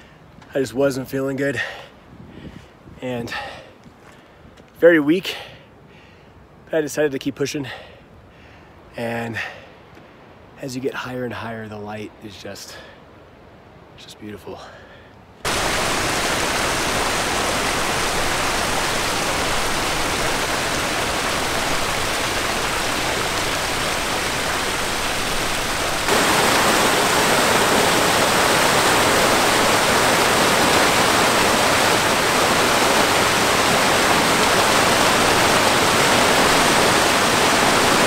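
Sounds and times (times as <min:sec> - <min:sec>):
rushing creek water: 0:15.4 - 0:38.0.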